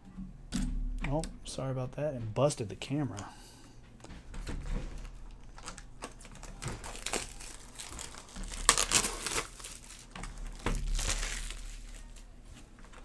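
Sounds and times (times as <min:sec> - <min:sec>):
plastic shrink-wrap crinkling: 0:04.6 - 0:13.0.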